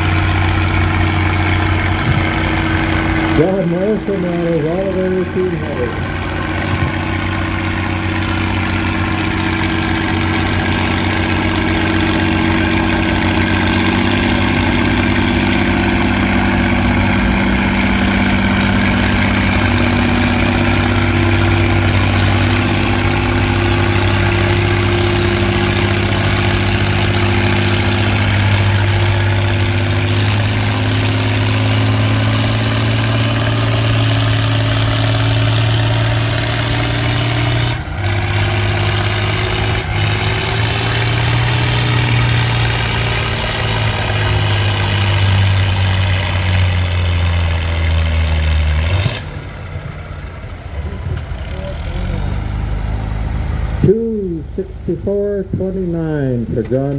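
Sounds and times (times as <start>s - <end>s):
tractor engine under load: 0.0s - 56.9s.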